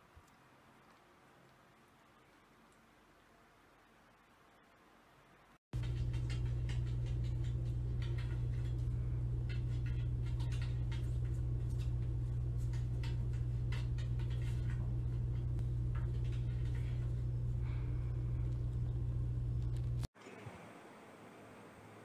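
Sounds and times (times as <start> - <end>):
steady low hum: 5.8 - 20.1.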